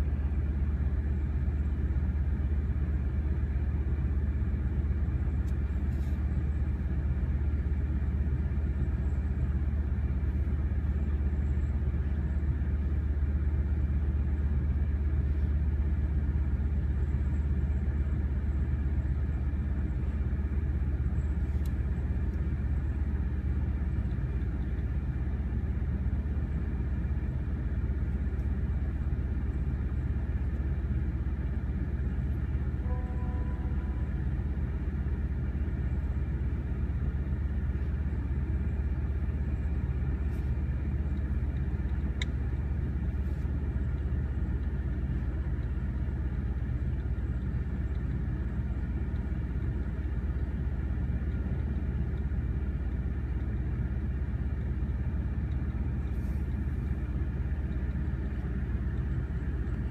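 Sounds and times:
car engine rumble: 0:00.0 - 0:59.9
faint pitched tone: 0:32.8 - 0:34.4.

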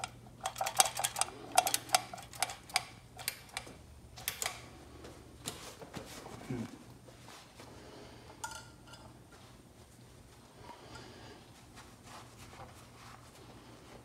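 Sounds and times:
metal throttle linkage clicking: 0:00.0 - 0:04.6.

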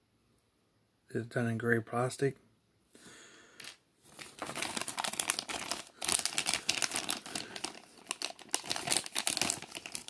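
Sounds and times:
plastic baggie crinkling: 0:03.6 - 0:10.0.

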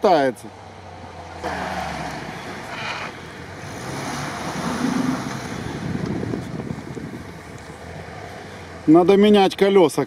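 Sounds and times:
engine running at low revs: 0:00.6 - 0:09.1
tyres churning snow: 0:01.4 - 0:10.0
wind buffeting microphone: 0:03.4 - 0:08.5.

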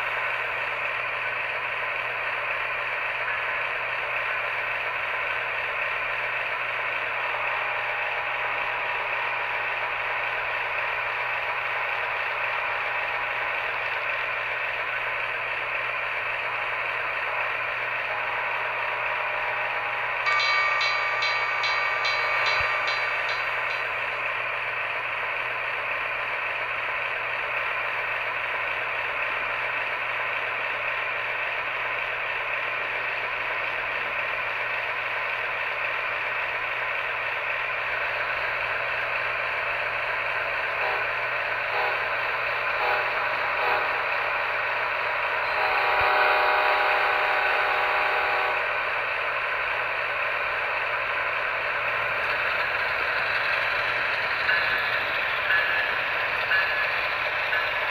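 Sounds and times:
model train clatter and whir: 0:00.0 - 0:57.9
held pitched tone: 0:20.2 - 0:24.2.

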